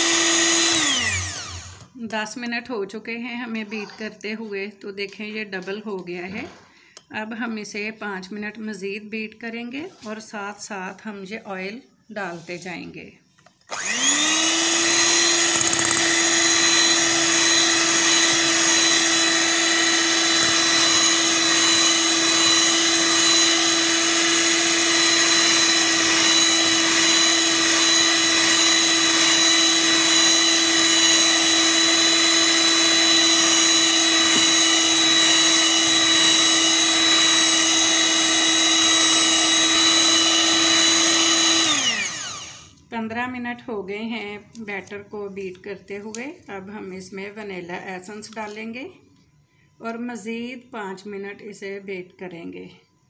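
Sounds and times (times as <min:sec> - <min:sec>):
electric hand mixer running: 0:00.0 - 0:01.9, 0:13.7 - 0:42.8.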